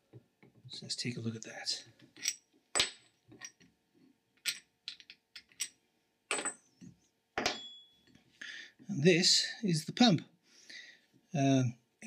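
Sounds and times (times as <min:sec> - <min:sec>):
metal clinks and knocks: 0:04.4 - 0:06.7, 0:07.4 - 0:08.1.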